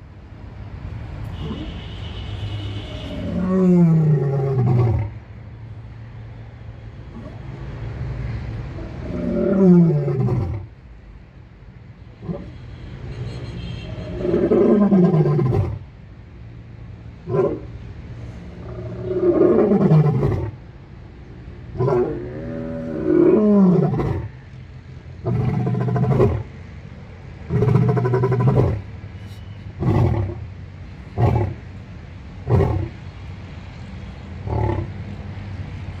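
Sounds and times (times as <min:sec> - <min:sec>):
lion roaring: 0:03.1 - 0:05.1, 0:08.8 - 0:10.7, 0:14.0 - 0:15.8, 0:18.6 - 0:20.6, 0:21.8 - 0:24.3, 0:25.2 - 0:26.5, 0:27.5 - 0:28.8, 0:29.8 - 0:30.4, 0:31.2 - 0:31.6, 0:32.4 - 0:33.0, 0:34.4 - 0:34.9.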